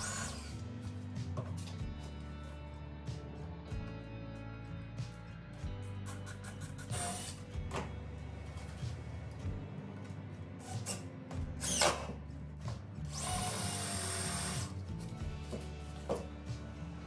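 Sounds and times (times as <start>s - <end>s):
cordless drill whirring: 0.0s - 0.6s, 11.6s - 12.1s, 13.1s - 14.8s.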